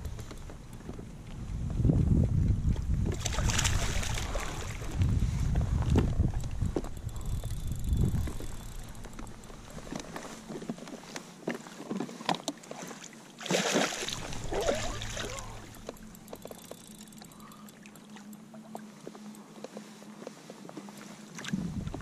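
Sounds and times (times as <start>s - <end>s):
fish thrashing in water: 3.1s - 4.9s, 13.4s - 16.8s.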